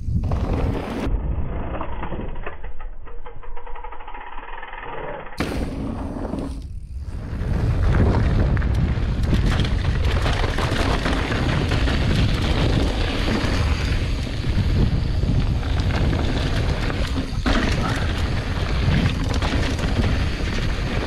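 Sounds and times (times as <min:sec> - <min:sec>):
wind buffeting microphone: 0:06.5 - 0:21.0
mountain bike rattling over rocks: 0:07.4 - 0:21.0.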